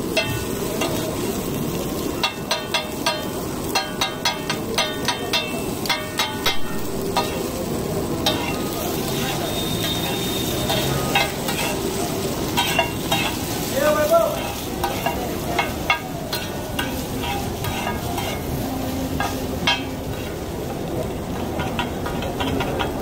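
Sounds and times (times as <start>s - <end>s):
patties sizzling in oil: 0.0s - 23.0s
metal spatulas scraping griddle: 8.2s - 20.4s.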